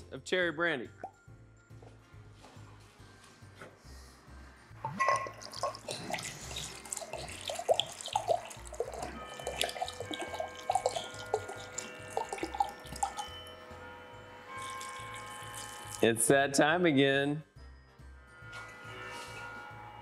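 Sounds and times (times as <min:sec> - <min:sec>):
liquid glugging from glass bottle: 0:04.8 - 0:13.3.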